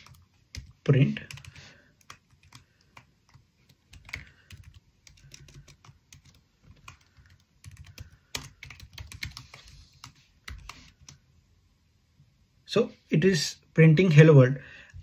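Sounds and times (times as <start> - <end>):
computer keyboard typing: 0.0 - 11.2.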